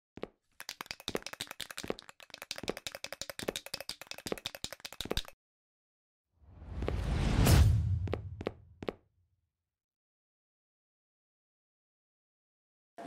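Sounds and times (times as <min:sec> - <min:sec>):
rapid clicking and clattering: 0:00.6 - 0:05.4
whoosh: 0:06.5 - 0:08.4.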